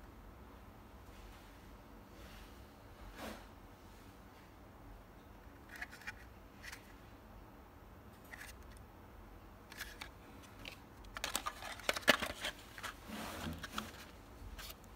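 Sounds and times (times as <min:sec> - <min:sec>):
short scrape: 0:03.1 - 0:03.5, 0:13.0 - 0:14.0
cardboard rustling: 0:09.7 - 0:14.9.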